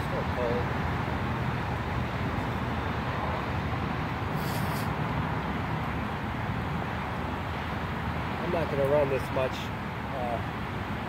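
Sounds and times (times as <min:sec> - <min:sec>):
road traffic rumble: 0:00.0 - 0:11.0
short hiss: 0:04.4 - 0:05.0.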